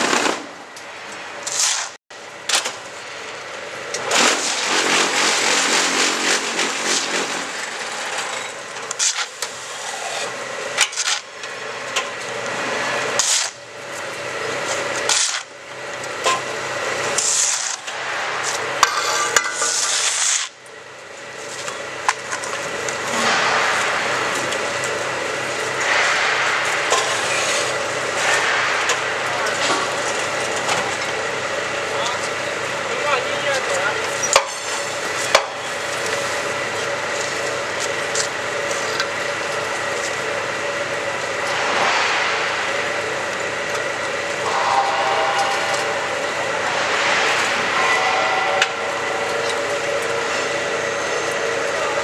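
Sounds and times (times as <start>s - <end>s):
machine hum: 0.0s - 52.0s
sharp machine knocks: 23.1s - 24.5s.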